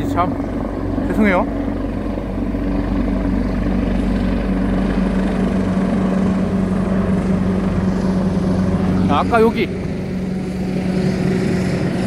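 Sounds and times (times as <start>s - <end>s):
helicopter flying overhead: 0.0s - 12.0s.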